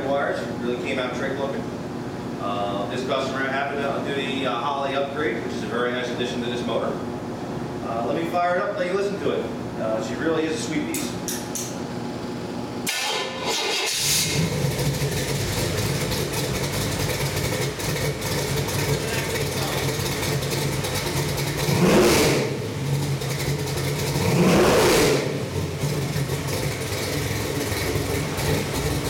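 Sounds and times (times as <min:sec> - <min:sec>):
car engine starting and idling: 0:12.8 - 0:29.0
engine revving: 0:12.9 - 0:29.0.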